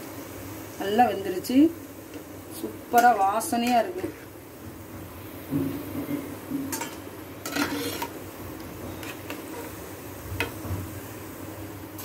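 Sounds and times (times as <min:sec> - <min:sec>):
food sizzling in hot oil: 0:00.0 - 0:12.0
metal spatula scraping pan: 0:06.7 - 0:08.2, 0:08.9 - 0:09.8.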